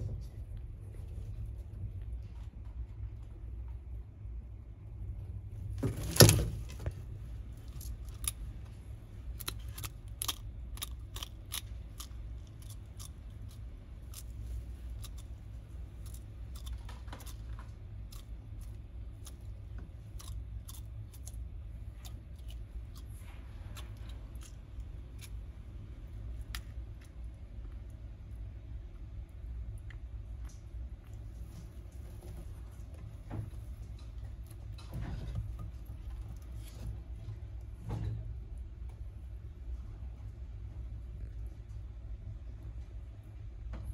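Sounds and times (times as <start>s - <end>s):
steady low hum: 0.0s - 43.9s
eggshell cracking: 7.6s - 19.5s
sharp clicks of eggshell breaking: 9.3s - 23.1s.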